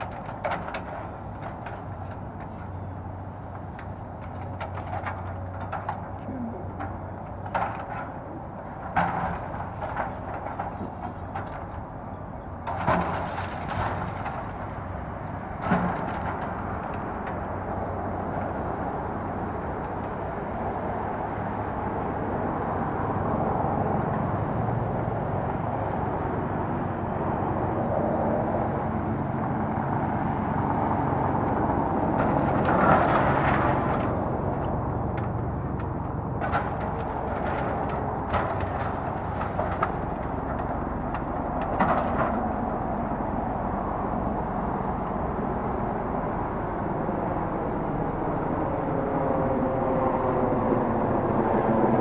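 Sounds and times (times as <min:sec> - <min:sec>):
structure knocks and bangs: 0:00.0 - 0:18.8, 0:29.8 - 0:43.8
debris crashing: 0:03.5 - 0:17.5, 0:31.9 - 0:43.2
excavator engine running: 0:19.3 - 0:52.0.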